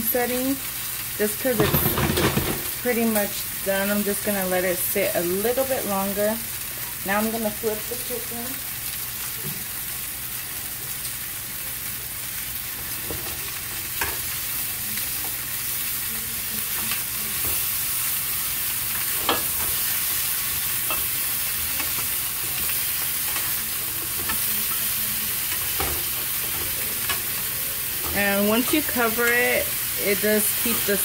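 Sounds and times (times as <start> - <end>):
chicken sizzling in oil: 0.0 - 31.0.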